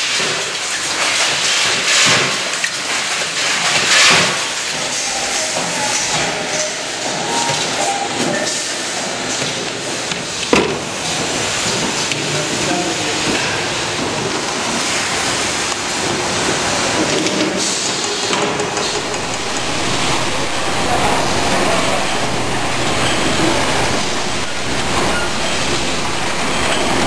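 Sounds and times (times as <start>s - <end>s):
packaging machinery running: 18.8s - 27.0s.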